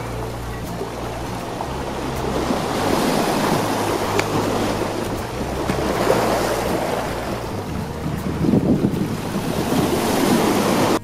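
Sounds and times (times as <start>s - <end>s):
waves splashing on rocks: 0.0s - 11.0s
wind buffeting microphone: 0.0s - 11.0s.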